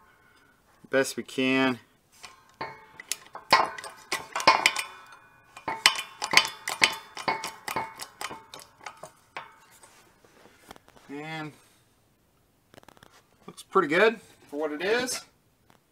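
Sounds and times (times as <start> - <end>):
metallic clinks and taps: 2.2 - 10.0.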